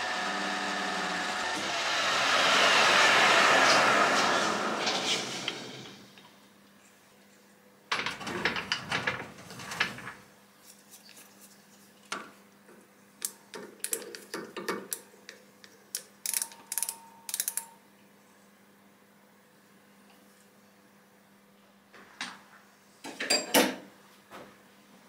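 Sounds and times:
micrometer ratchet clicking: 16.2s - 17.7s.

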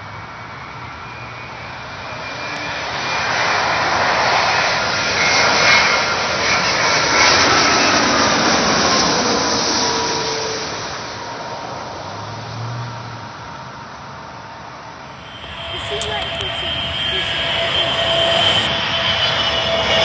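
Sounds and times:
jet engine rushing overhead: 0.0s - 12.0s, 15.0s - 20.0s
whine sliding down in pitch: 15.1s - 20.0s.

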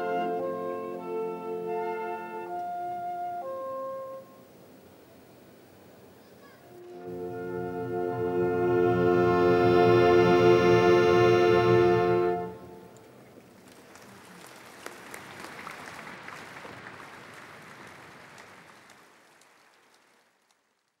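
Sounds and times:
military wind band chord: 0.0s - 4.5s, 6.7s - 13.1s
audience applause: 12.8s - 21.0s.

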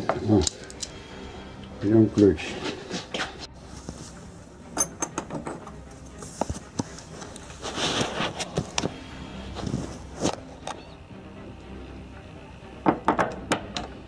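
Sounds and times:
short rustle: 6.2s - 10.4s.

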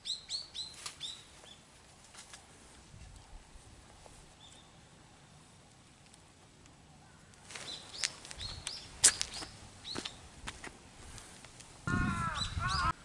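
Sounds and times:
faint outdoor background: 0.0s - 13.0s
high bird chirps: 12.2s - 13.0s.

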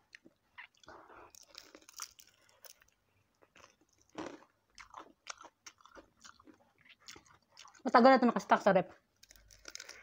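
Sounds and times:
crunching bites and chewing: 0.0s - 7.8s, 9.2s - 10.0s.

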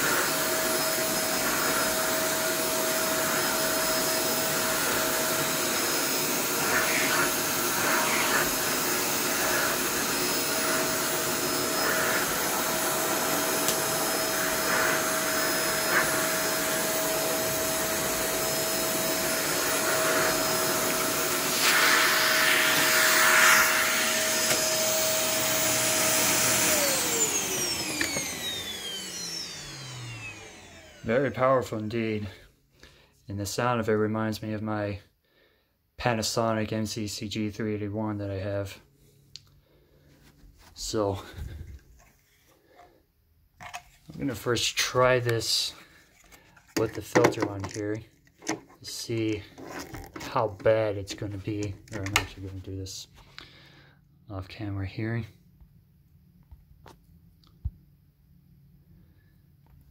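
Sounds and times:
vacuum cleaner whining: 0.0s - 32.4s, 40.2s - 43.0s, 43.6s - 53.8s.

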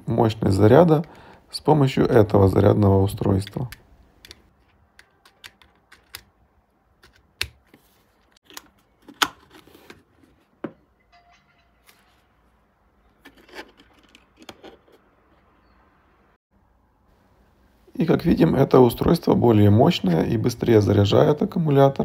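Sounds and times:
plastic plugs clicking: 3.4s - 6.4s.

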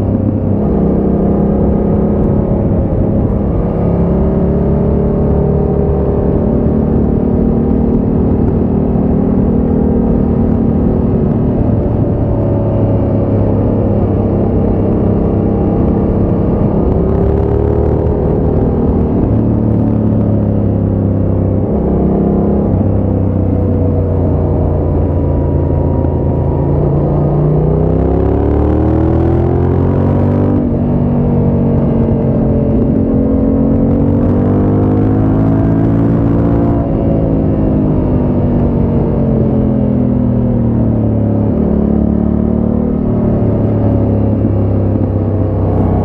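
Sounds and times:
motorcycle engine cruising: 0.0s - 46.0s.

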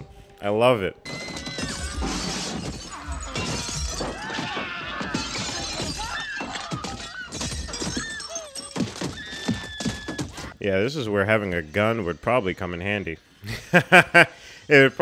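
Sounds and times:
glass shattering and crunching: 1.1s - 9.8s.

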